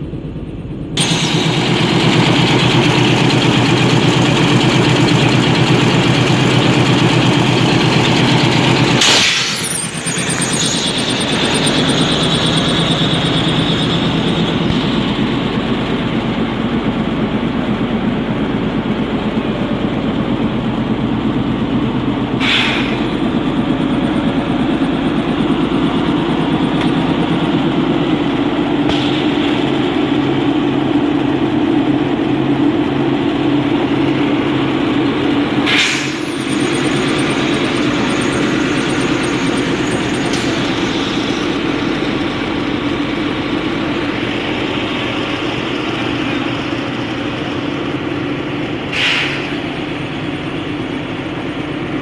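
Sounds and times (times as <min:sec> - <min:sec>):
diesel locomotive idling: 0:00.0 - 0:52.0
short hisses: 0:22.4 - 0:23.0, 0:49.0 - 0:49.5.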